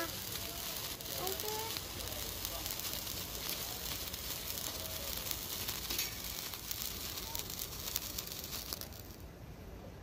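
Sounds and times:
sparkler sizzling and crackling: 0:00.0 - 0:09.4.

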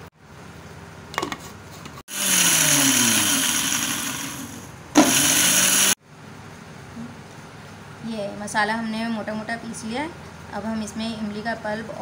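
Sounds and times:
electric grinder grinding seeds: 0:02.1 - 0:06.0.

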